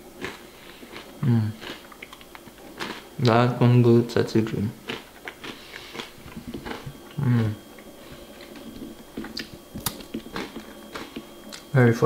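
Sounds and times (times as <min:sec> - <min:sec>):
chewing crunchy breadstick: 0:00.0 - 0:03.4, 0:04.5 - 0:11.8
person humming: 0:01.2 - 0:01.6, 0:07.1 - 0:07.6.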